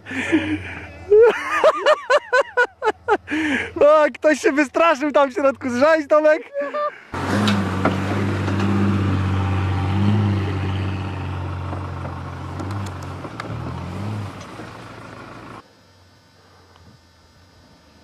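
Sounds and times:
truck engine pulling under load: 7.2s - 15.6s
tyre noise: 7.2s - 15.6s.

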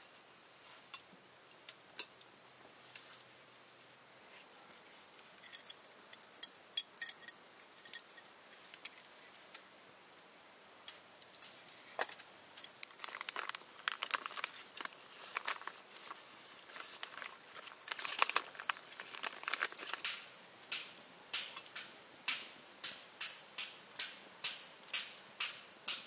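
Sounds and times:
light rustling: 11.4s - 20.4s.

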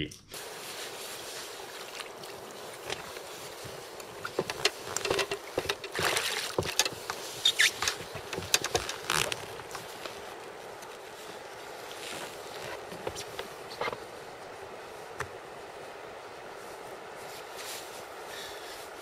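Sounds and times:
faint background hiss: 0.0s - 19.0s
rustling and light knocks: 1.2s - 15.4s.

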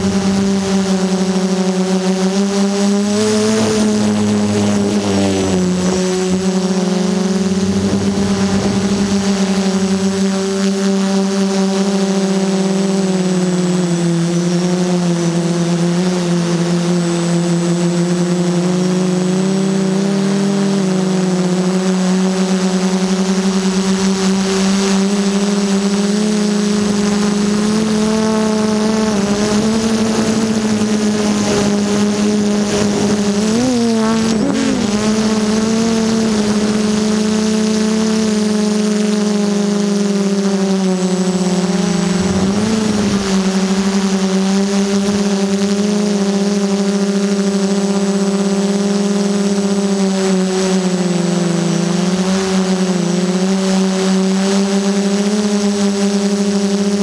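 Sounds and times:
drone motors humming: 0.0s - 57.0s.

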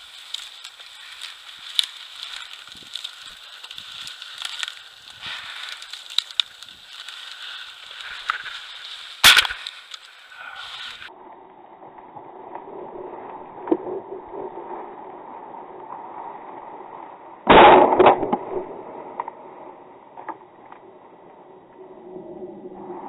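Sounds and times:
footsteps crunching through dry grass: 0.0s - 11.1s
shotgun shot: 17.5s - 18.5s.

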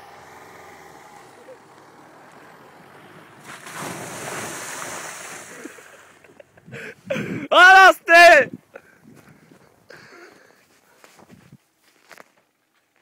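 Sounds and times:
pickup engine driving past: 0.0s - 6.6s
tyres spraying snow and slush: 2.6s - 6.4s.

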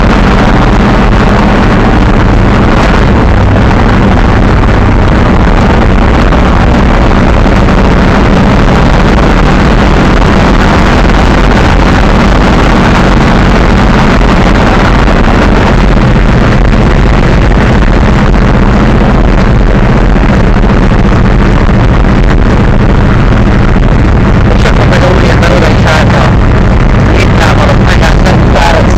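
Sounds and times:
road and wind noise: 0.0s - 28.9s
truck engine running: 0.0s - 28.9s.

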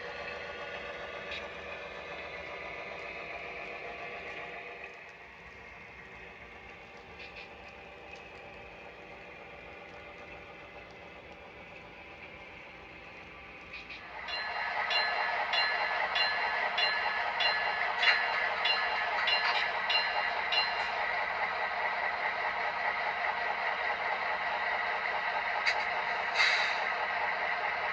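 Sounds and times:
model diesel locomotive engine: 0.0s - 27.9s
bell ringing: 14.2s - 21.2s.

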